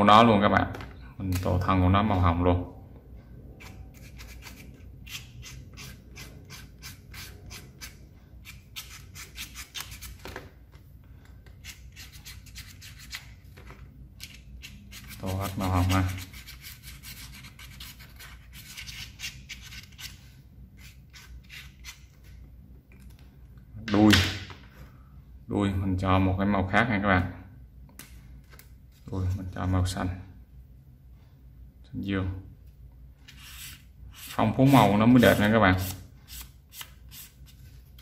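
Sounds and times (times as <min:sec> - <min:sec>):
marker pen scratching on paper: 0:03.6 - 0:10.2.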